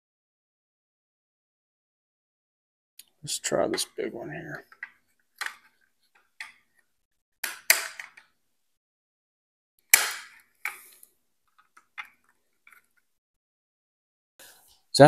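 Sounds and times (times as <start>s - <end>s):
sharp plastic clicks: 7.4s - 8.4s, 9.9s - 13.1s.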